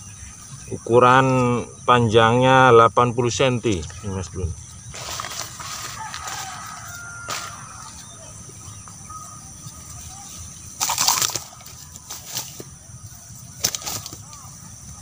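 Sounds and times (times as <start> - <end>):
fish thrashing in grass: 4.8 - 8.1, 10.1 - 14.6.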